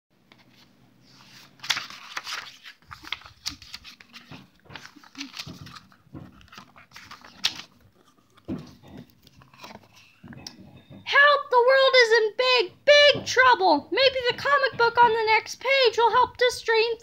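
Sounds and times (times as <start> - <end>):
book pages turning: 0.3 - 10.2.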